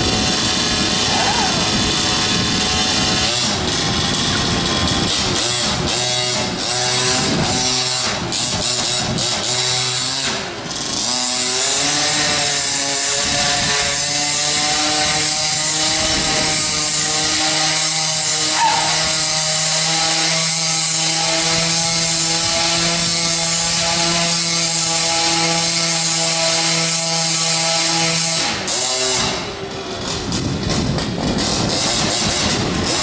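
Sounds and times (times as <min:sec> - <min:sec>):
small two-stroke engine buzzing: 0:00.0 - 0:33.0.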